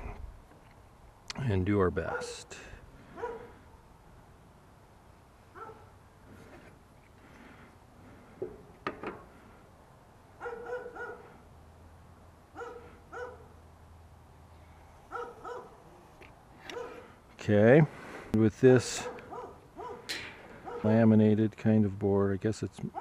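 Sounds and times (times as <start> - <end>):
dog barking faintly: 3.2 - 3.5, 10.4 - 11.3, 12.6 - 13.5, 15.1 - 15.9, 16.7 - 17.1, 19.0 - 21.0.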